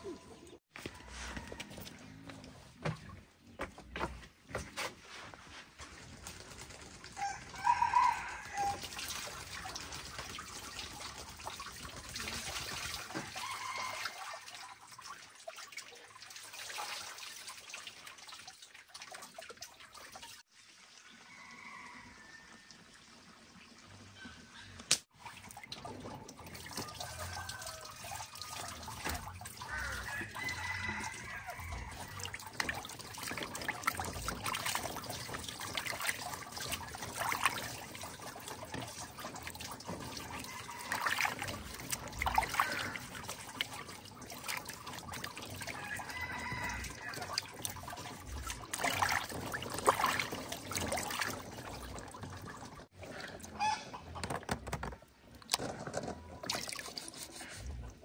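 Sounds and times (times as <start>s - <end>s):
water splashing and trickling: 0.0s - 58.0s
hands peeling eggs in water: 25.2s - 58.0s
chickens clucking: 53.2s - 54.6s.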